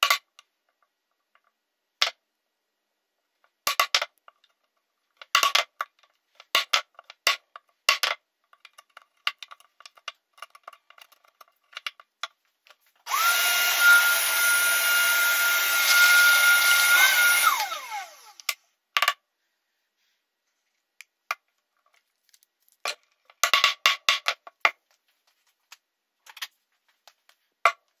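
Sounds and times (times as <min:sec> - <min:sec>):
small power tool whining: 0:13.0 - 0:18.6.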